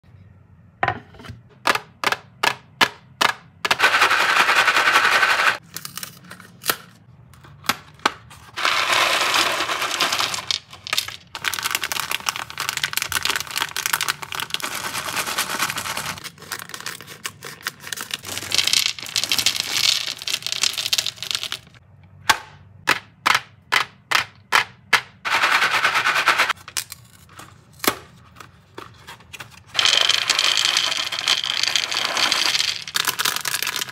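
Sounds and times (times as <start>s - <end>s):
candy packaging crinkling: 8.4s - 21.8s, 26.5s - 33.9s.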